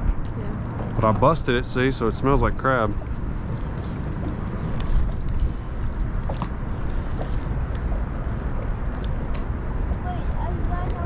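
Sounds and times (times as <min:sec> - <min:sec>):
water lapping around boat: 0:00.0 - 0:11.0
wind rumbling on microphone: 0:00.0 - 0:11.0.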